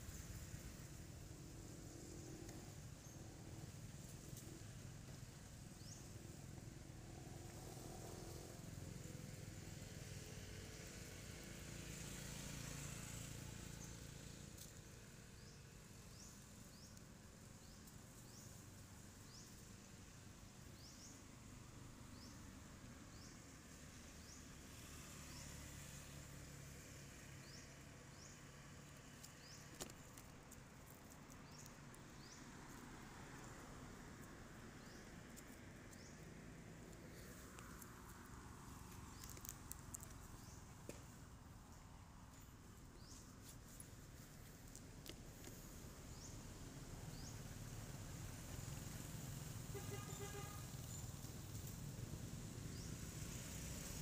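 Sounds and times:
distant road traffic: 0.0 - 54.0.

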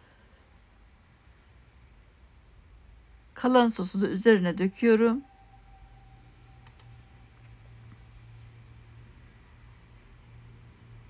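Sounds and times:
low hum with hiss: 0.0 - 11.0.

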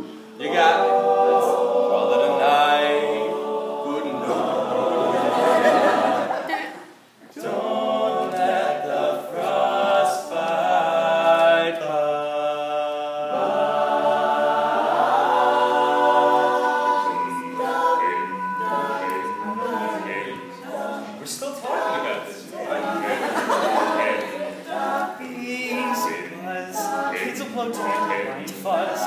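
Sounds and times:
male vocal backing chords: 10.4 - 29.0
male soloist singing: 25.1 - 29.0.

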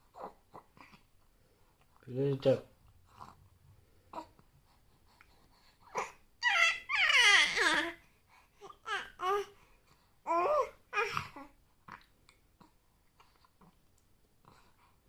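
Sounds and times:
infant babbling: 5.9 - 8.0, 8.6 - 9.6, 10.2 - 12.0.

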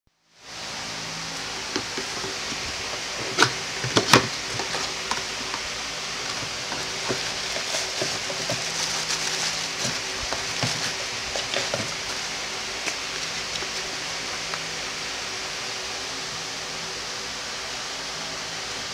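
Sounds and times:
steady hiss: 0.3 - 18.9
cardboard flaps rustling: 1.4 - 14.1
packaging clicks and taps: 3.2 - 14.6.

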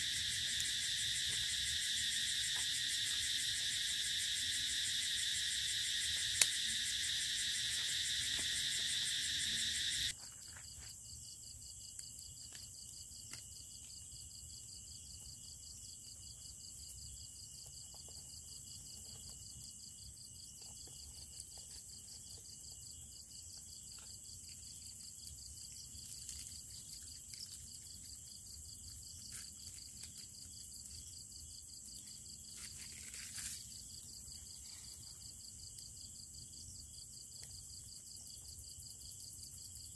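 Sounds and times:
pulsing insect trill: 0.0 - 10.2
crickets and insects shrilling: 0.0 - 10.5, 23.7 - 36.3.

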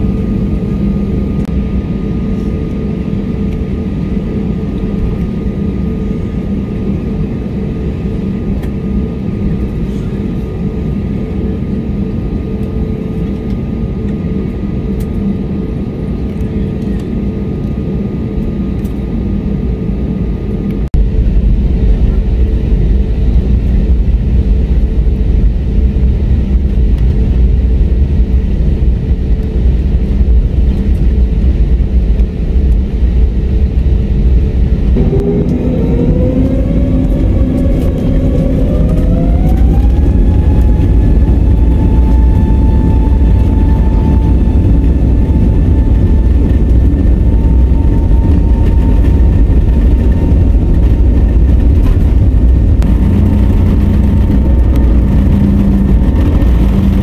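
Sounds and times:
aircraft engine hum and rumble: 0.0 - 57.0
faint high whine: 33.5 - 51.0.

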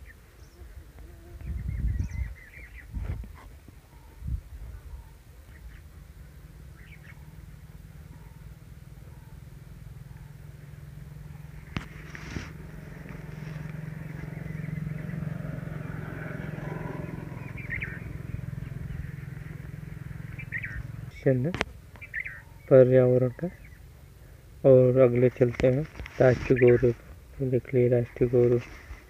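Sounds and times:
bird chirp: 1.4 - 3.0, 3.8 - 24.3, 26.4 - 27.0
paper sheet rustling: 11.8 - 12.6.

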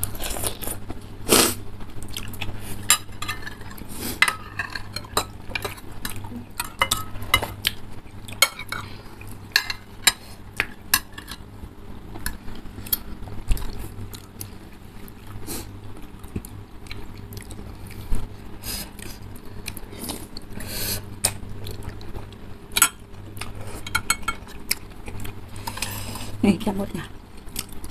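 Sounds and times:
cutlery clinking on ceramic bowls: 6.6 - 7.6, 23.8 - 24.5.

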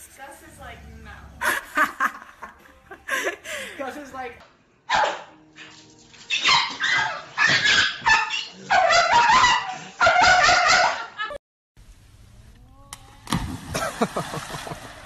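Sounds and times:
dog yipping and whining: 6.3 - 11.1.

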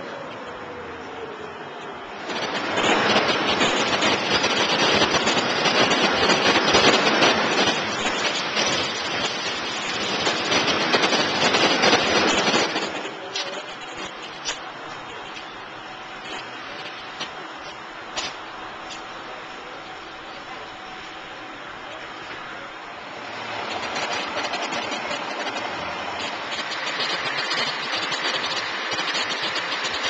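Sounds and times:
bus rattling and road noise: 0.0 - 30.0.

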